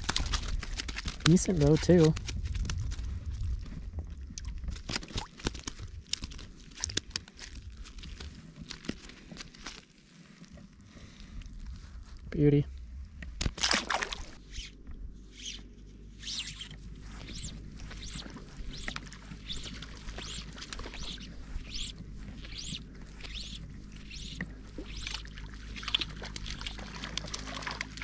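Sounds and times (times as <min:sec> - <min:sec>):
soft swishing water: 0:00.0 - 0:28.0
water splash: 0:13.4 - 0:14.4, 0:24.7 - 0:28.0.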